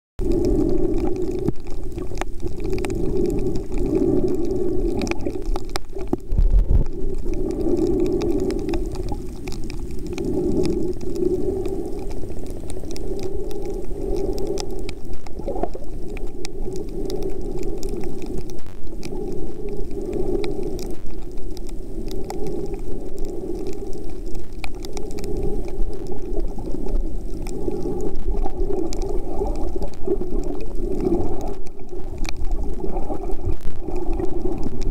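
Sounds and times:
faint clicks: 0:00.2 - 0:34.9
underwater water sloshing: 0:00.2 - 0:34.9.

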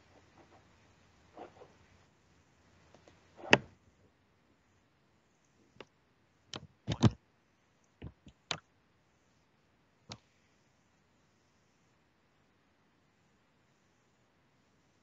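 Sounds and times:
sharp clicks and knocks: 0:06.5 - 0:07.2.

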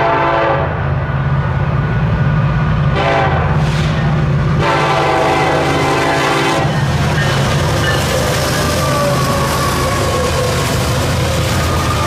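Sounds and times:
locomotive air horn blasts: 0:00.0 - 0:00.9, 0:02.9 - 0:04.0, 0:04.6 - 0:06.8
rumble of passing train: 0:00.0 - 0:12.0.

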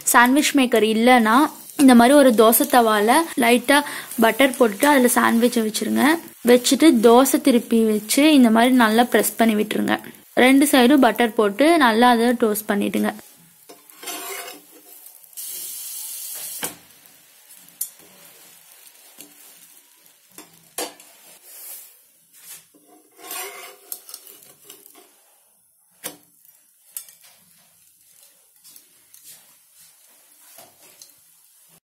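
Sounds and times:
sandwich sizzling: 0:00.0 - 0:31.8
spatula scraping on griddle: 0:13.3 - 0:15.2, 0:17.7 - 0:25.4, 0:26.4 - 0:31.8.

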